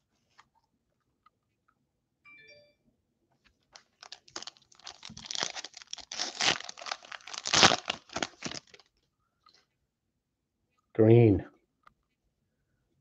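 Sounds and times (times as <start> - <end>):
foil wrapper tearing and crinkling: 3.8 - 8.9.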